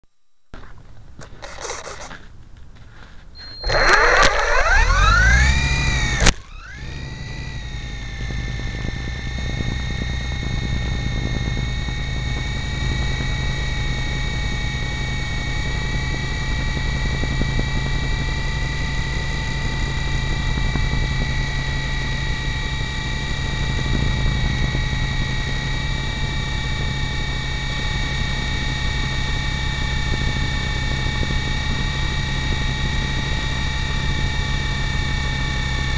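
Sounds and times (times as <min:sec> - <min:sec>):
helicopter motors whining: 0:01.1 - 0:35.9
click: 0:03.4 - 0:07.1.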